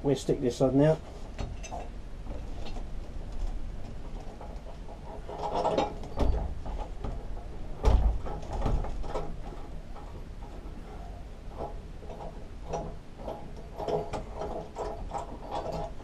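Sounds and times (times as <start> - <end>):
metal clunks and scrapes: 1.0 - 16.0
knocks: 5.7 - 9.3
heavy thump: 7.8 - 9.1.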